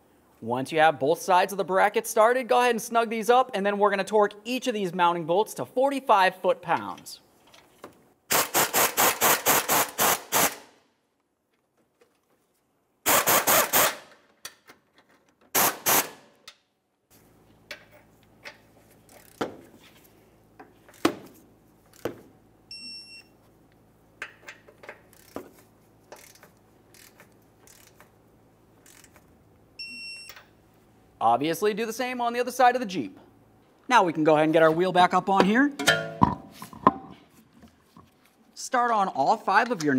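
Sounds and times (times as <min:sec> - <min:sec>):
ratchet clicking: 0:19.1 - 0:19.5, 0:24.2 - 0:25.4, 0:26.1 - 0:28.2, 0:28.8 - 0:29.2
torque wrench beep: 0:22.7 - 0:23.4, 0:29.8 - 0:30.5.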